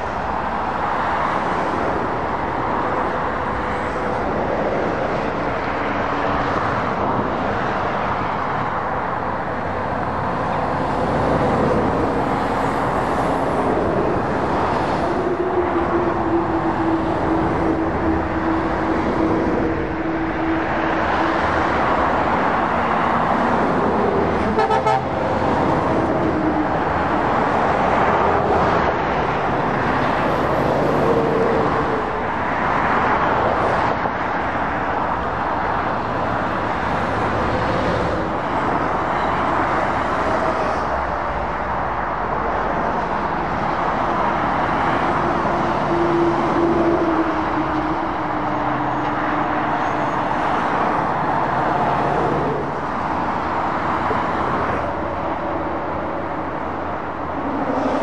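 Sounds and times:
traffic tyre and engine noise: 0.0 - 58.0
lorry horn held tone: 24.5 - 25.1.

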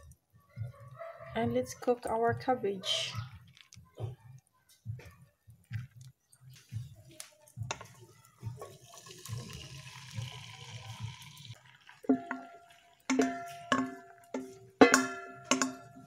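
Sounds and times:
cabbage sizzling in hot oil: 8.7 - 13.0.

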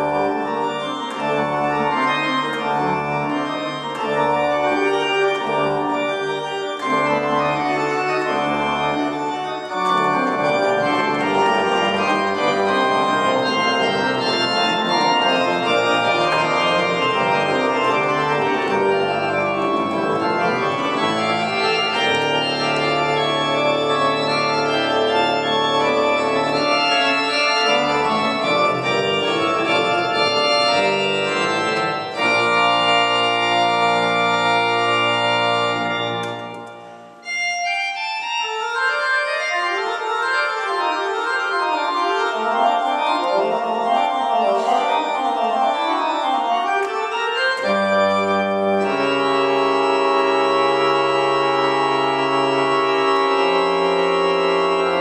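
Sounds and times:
organ playing sustained chords: 0.0 - 55.0.

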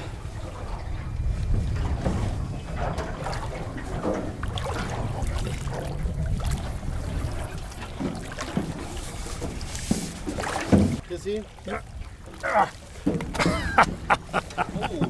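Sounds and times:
wind rumble on microphone: 0.0 - 11.0
water sloshing against boat hull: 0.0 - 15.0.

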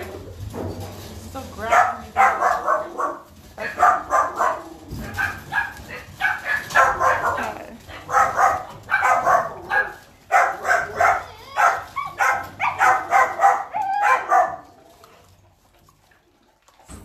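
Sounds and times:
puppies barking: 1.6 - 15.0.

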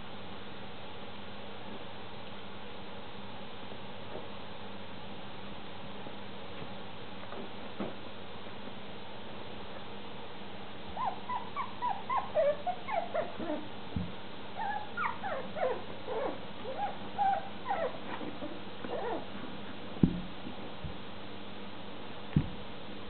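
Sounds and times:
puppies whimpering and yipping: 11.0 - 13.7, 14.6 - 19.3
thump: 20.0 - 20.3, 22.4 - 22.6.

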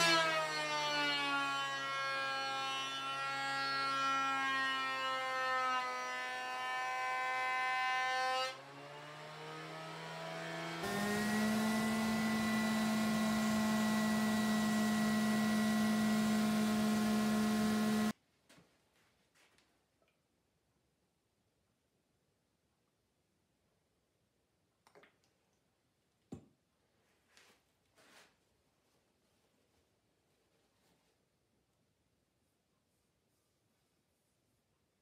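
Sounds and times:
thickness planer whining: 0.0 - 18.1
orbit sander humming: 8.6 - 18.1.

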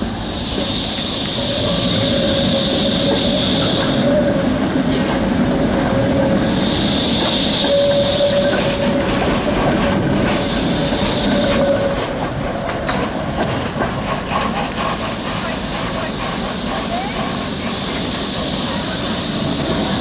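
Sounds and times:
tram wheels clicking over rail joints: 0.0 - 20.0
tram whine: 0.0 - 20.0.

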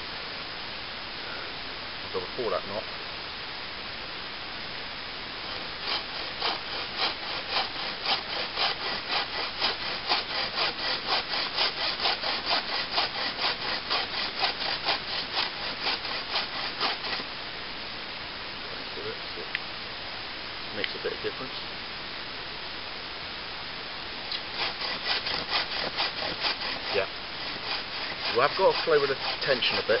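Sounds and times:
saw rasping through log: 5.4 - 17.3, 24.3 - 30.0.

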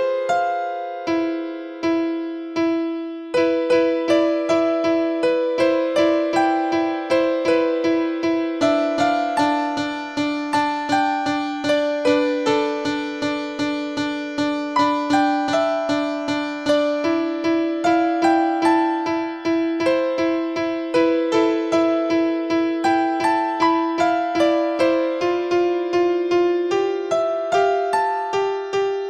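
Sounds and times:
keyboard playing a simple melody: 0.0 - 29.0.

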